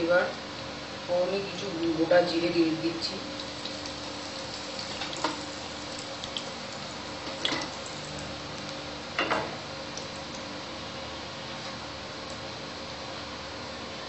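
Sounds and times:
faint steady hum: 0.0 - 14.0
oil sizzling in a frying pan: 3.0 - 8.8.

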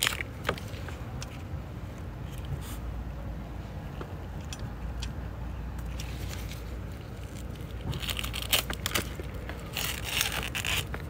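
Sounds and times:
dry leaves crackling: 6.0 - 11.0.

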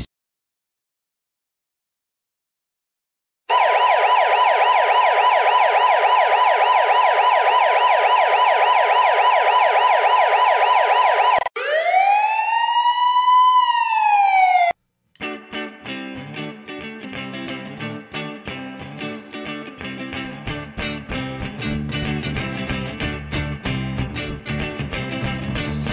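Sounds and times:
electronic police siren: 3.5 - 14.8
music: 15.2 - 25.9.

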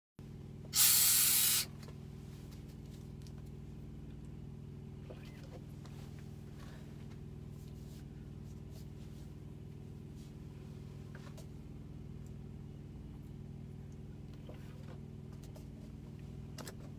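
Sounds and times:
low hum of held tones: 0.2 - 16.9
loud hiss: 0.7 - 1.7.

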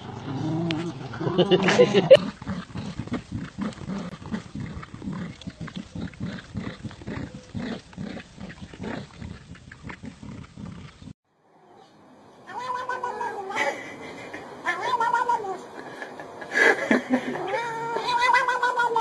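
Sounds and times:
dogs growling in play: 0.0 - 11.2.

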